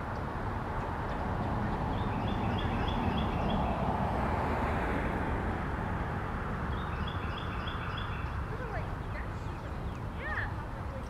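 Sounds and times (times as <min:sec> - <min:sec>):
distant road traffic: 0:00.0 - 0:11.0
bird chirping: 0:01.0 - 0:03.8, 0:06.7 - 0:10.6.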